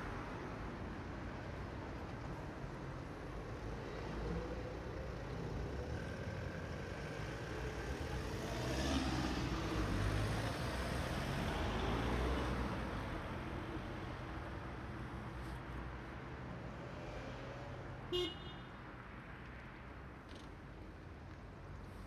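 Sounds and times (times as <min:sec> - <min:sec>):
road traffic driving past: 0:00.0 - 0:22.0.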